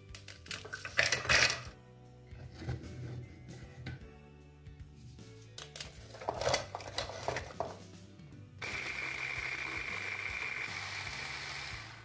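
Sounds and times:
biscuits clattering into plastic bowl: 0.2 - 1.7, 5.8 - 7.8
electric food chopper whining: 8.6 - 12.0.

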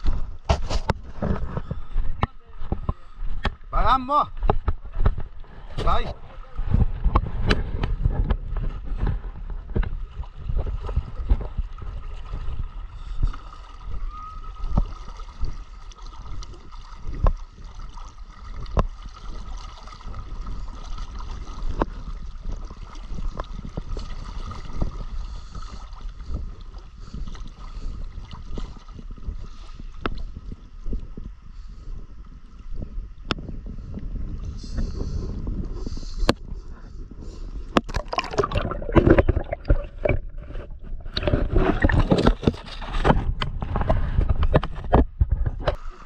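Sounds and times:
water sloshing around wading legs: 8.4 - 30.4, 37.8 - 43.9.

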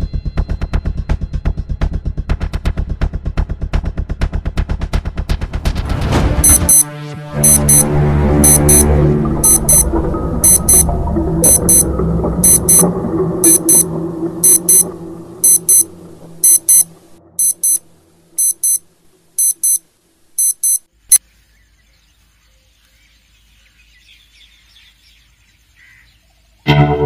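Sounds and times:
low background music: 0.0 - 18.8, 26.7 - 27.0
alarm clock double beeps: 6.4 - 17.8, 18.4 - 18.8, 19.4 - 19.8, 20.4 - 20.9.

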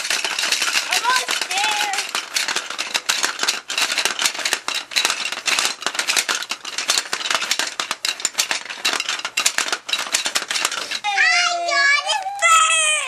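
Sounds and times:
plastic jaws clacking: 0.0 - 11.1
marbles rattling on plastic board: 0.0 - 13.0.

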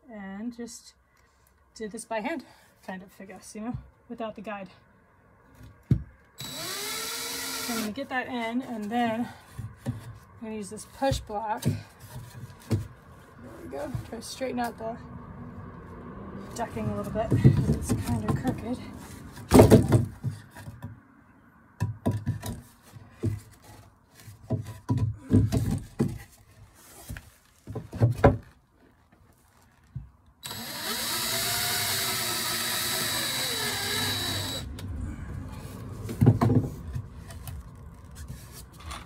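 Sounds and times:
drill driving screw into wood: 6.4 - 7.9, 30.4 - 34.7
knocks and bumps: 16.8 - 21.0, 21.8 - 26.4, 27.1 - 28.6, 35.9 - 37.6.

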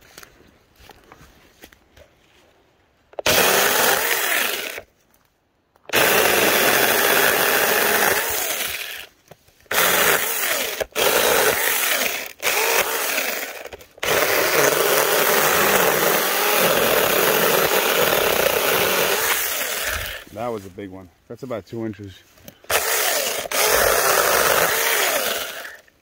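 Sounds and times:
mini chainsaw cutting branch: 3.2 - 4.9, 5.9 - 9.1, 9.7 - 20.3, 22.5 - 25.9.

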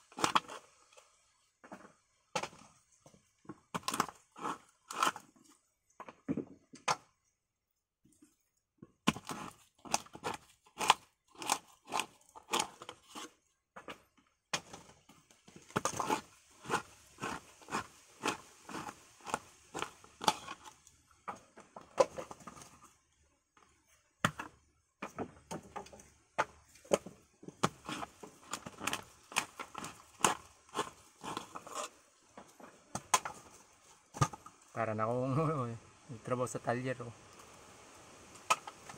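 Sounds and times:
coconut meat scraping: 0.0 - 1.1, 3.7 - 5.6, 9.1 - 13.4, 15.6 - 20.9, 27.6 - 32.0.

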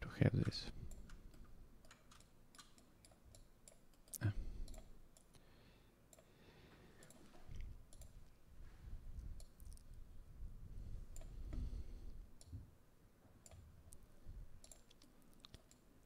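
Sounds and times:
computer mouse clicking: 0.4 - 5.4, 7.0 - 8.2, 14.6 - 15.9.

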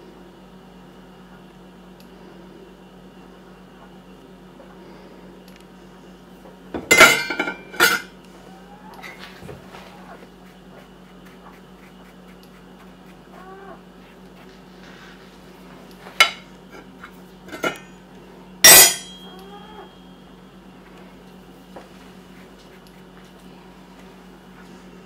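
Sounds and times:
cat meowing faintly: 13.3 - 13.9, 19.3 - 20.0
knife clinking on ceramic plate: 18.7 - 19.4.

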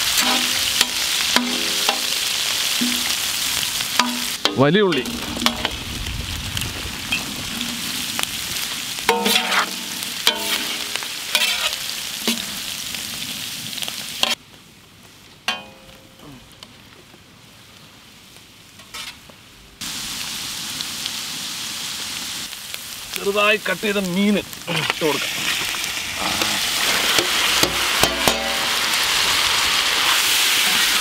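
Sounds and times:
vegetables sizzling in hot oil: 0.0 - 14.4, 19.8 - 31.0
metal scraping a pan: 0.1 - 3.3, 4.0 - 5.8, 9.1 - 12.6, 18.8 - 19.2, 24.8 - 28.8.

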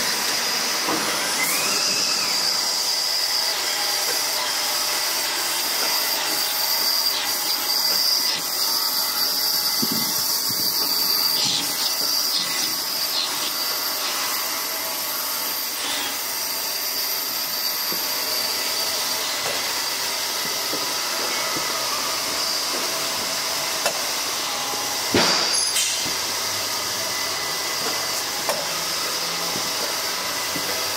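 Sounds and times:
machinery whirring and whining: 0.0 - 30.9.

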